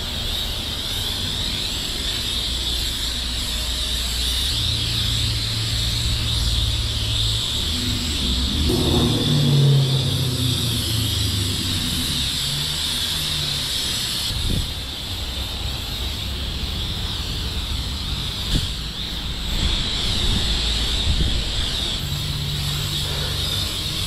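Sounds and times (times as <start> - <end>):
spray wand hissing: 0.0 - 24.0
low steady hum: 7.6 - 13.5.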